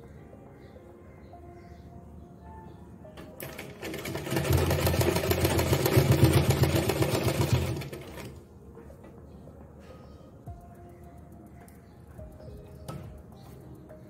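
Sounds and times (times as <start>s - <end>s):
sewing machine stitching: 3.3s - 8.4s.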